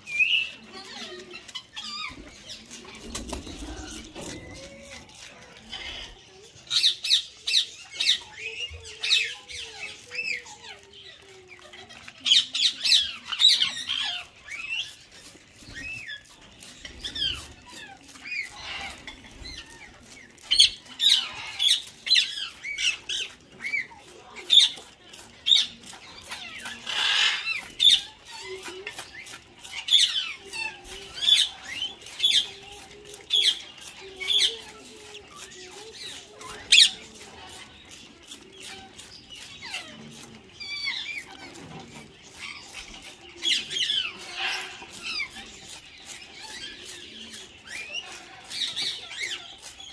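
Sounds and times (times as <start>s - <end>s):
parakeets squawking: 11.7s - 49.9s.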